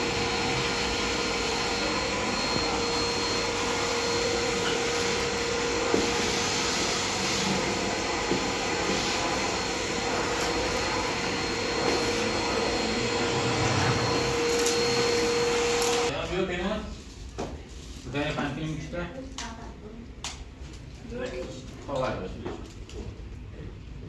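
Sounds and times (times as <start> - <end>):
vacuum cleaner running: 0.0 - 16.2.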